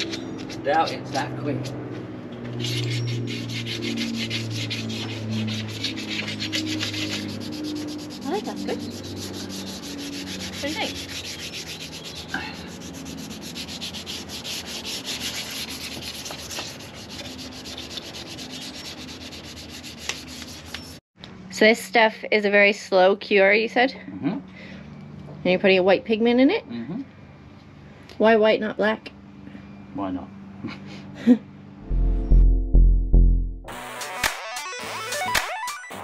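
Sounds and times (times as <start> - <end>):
sandpaper rasping on metal: 0.0 - 1.8, 2.5 - 21.0.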